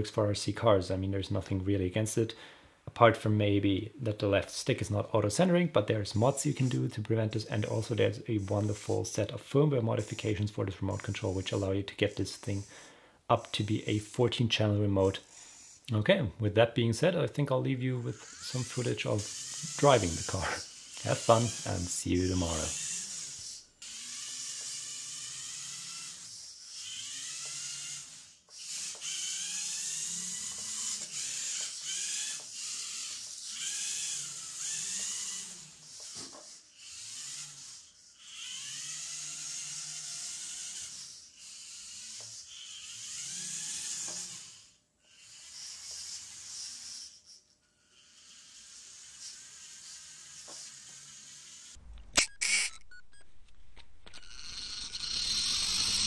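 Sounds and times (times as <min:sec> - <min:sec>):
toy car motor whining: 0:06.1 - 0:09.3, 0:09.9 - 0:16.0, 0:17.9 - 0:53.2, 0:54.0 - 0:56.0
sharp clicks: 0:51.8 - 0:55.0.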